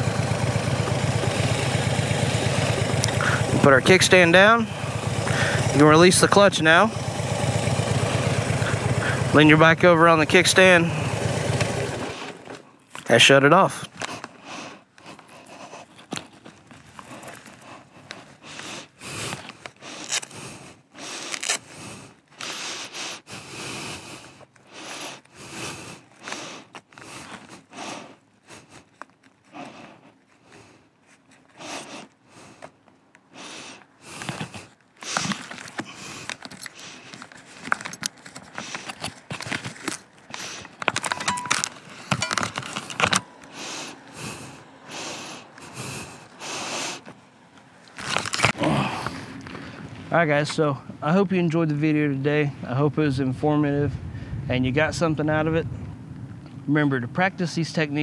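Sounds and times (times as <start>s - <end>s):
leather rustling and scraping: 13.9s - 22.5s, 24.3s - 44.6s, 46.9s - 48.6s.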